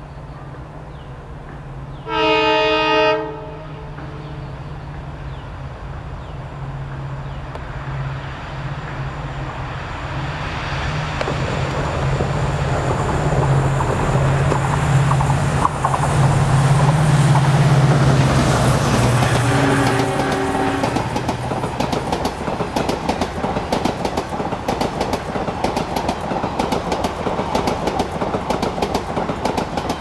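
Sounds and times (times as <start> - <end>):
locomotive engine droning: 0.0 - 24.7
rolling rail noise: 0.0 - 30.0
locomotive horn blast: 2.0 - 4.4, 19.2 - 21.2.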